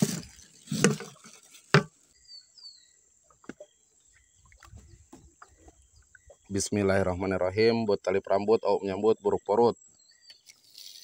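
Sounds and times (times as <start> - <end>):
rustling and knocking handling noises: 0.0 - 2.0
faint high insect whine: 9.2 - 11.0.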